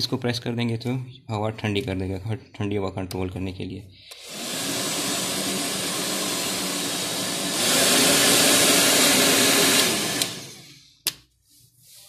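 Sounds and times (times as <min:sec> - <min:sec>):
hair dryer blowing: 0:04.1 - 0:10.8.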